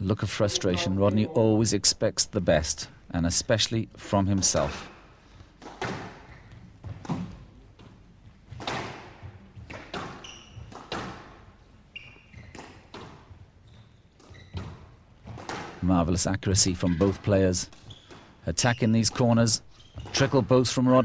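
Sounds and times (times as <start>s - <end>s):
shoes squeaking on floor: 6.2s - 7.5s, 9.2s - 15.6s, 16.8s - 20.6s.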